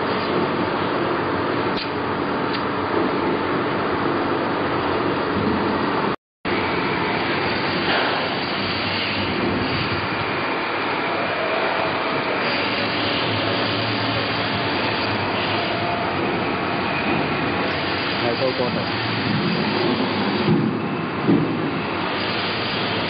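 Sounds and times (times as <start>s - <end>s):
knife grinder machine running: 6.5s - 20.5s.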